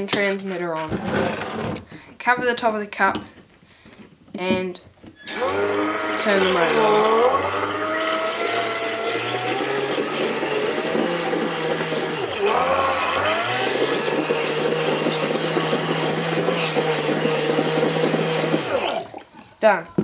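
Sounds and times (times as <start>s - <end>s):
electric motor whining underwater: 5.2s - 19.3s.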